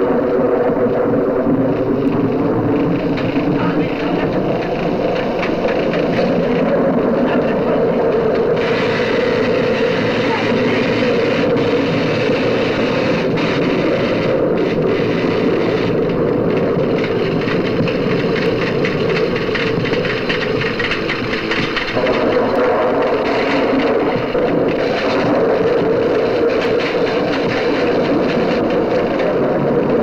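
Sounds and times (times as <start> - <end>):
sparks crackling: 0.0 - 30.0.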